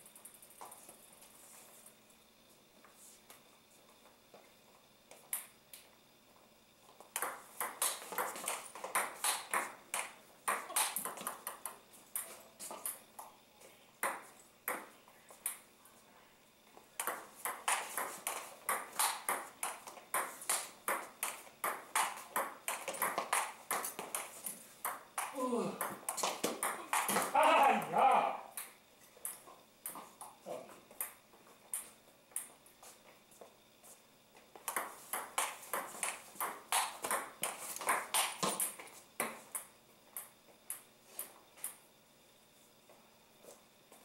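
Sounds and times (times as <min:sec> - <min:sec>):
table tennis ball knocking: 0:07.1 - 0:13.0, 0:17.0 - 0:27.4, 0:34.6 - 0:39.7.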